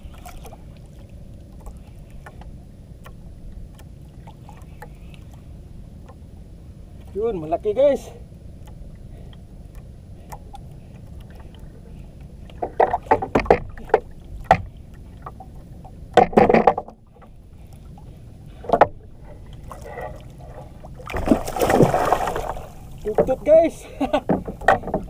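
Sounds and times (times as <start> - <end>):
water lapping: 0.0 - 5.6, 8.0 - 25.0
wind: 0.0 - 25.0.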